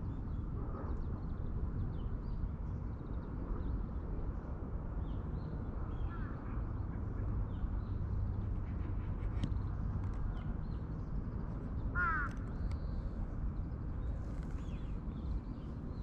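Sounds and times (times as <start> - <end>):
caw-like bird call: 11.9 - 12.4.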